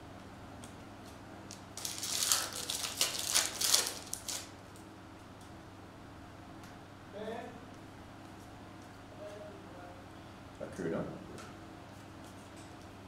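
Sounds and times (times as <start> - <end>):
cards rustling and shuffling: 1.5 - 4.5.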